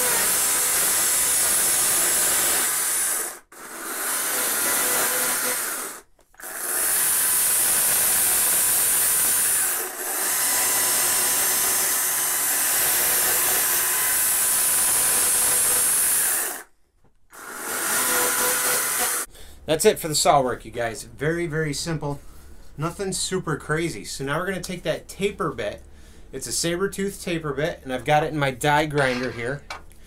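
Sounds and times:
chainsaw cutting wood: 0.0s - 16.7s, 17.3s - 19.3s.

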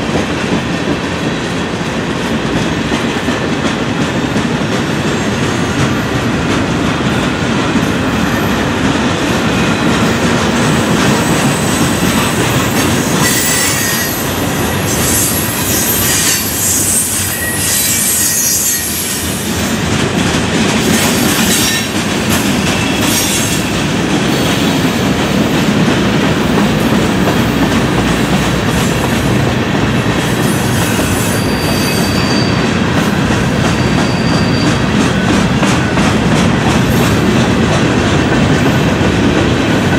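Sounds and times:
train wheels clattering on rails: 0.0s - 39.9s
high wheel squeal: 11.1s - 19.4s, 30.4s - 32.8s, 33.7s - 35.0s.

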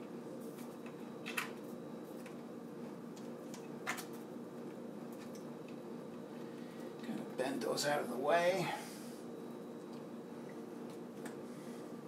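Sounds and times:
steady low hum: 0.0s - 12.0s
cables rustling and clicking: 3.1s - 7.1s.

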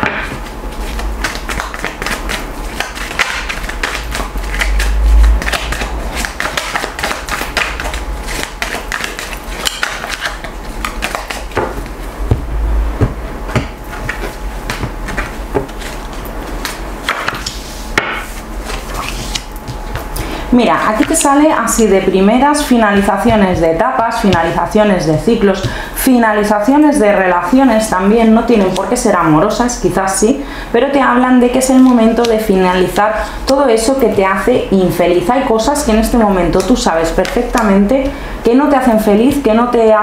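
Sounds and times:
cards being shuffled by hand: 0.4s - 12.0s, 13.5s - 20.2s, 36.6s - 37.8s
low thuds: 12.2s - 13.8s.

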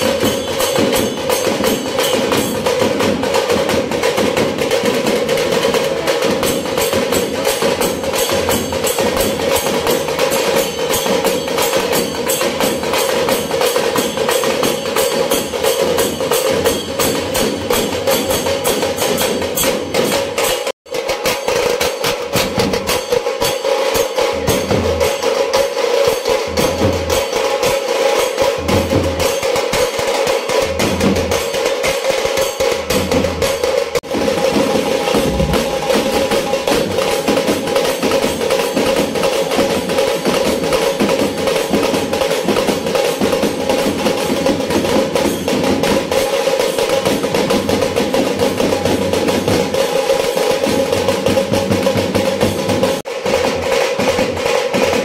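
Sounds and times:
drum band playing: 0.0s - 55.0s
bass drum thumps: 34.1s - 37.1s.

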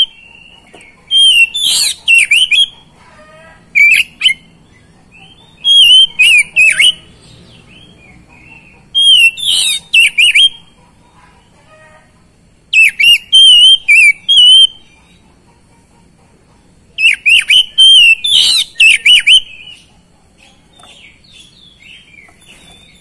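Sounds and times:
bird singing whistled phrases: 1.1s - 2.7s, 5.6s - 7.1s, 9.0s - 10.6s, 12.7s - 14.8s, 17.0s - 19.8s.

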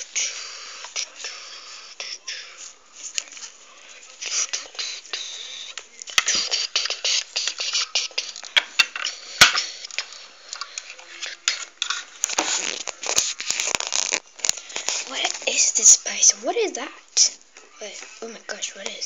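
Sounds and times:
plastic toys clicking and knocking: 6.0s - 12.6s.

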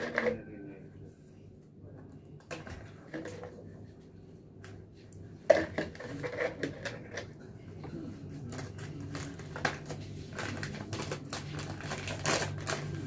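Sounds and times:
low steady hum: 0.0s - 13.0s
plastic bag crinkling: 8.5s - 13.0s.

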